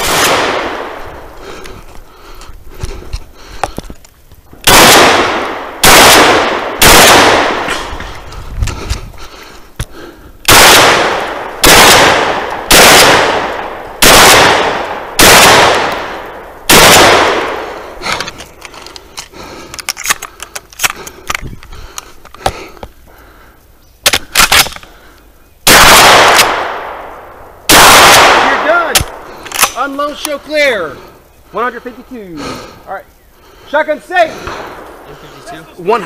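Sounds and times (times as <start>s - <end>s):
shotgun shots echoing: 0.0s - 1.0s, 4.6s - 8.0s, 10.5s - 17.8s, 25.7s - 27.1s, 27.7s - 29.8s
gun reloading clicks and clacks: 18.1s - 22.6s, 24.1s - 24.9s, 28.9s - 30.4s.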